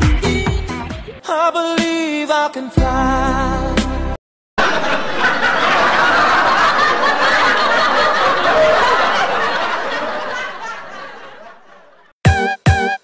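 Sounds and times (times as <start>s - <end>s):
laughter: 4.6s - 12.1s.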